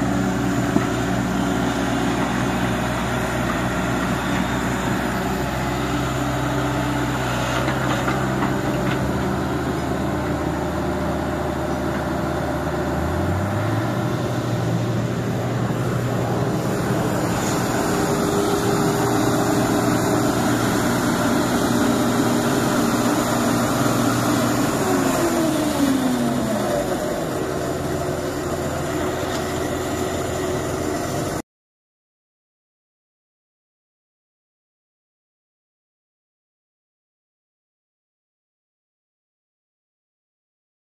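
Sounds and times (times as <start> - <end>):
heavy diesel engines running: 0.0 - 31.4
falling whine: 8.8 - 29.8.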